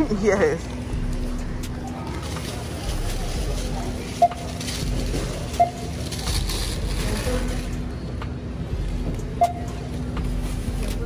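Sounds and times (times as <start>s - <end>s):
store hum: 0.0s - 11.0s
paper bags rustling: 2.1s - 7.7s
barcode scanner beeping: 4.1s - 6.7s, 9.2s - 9.9s.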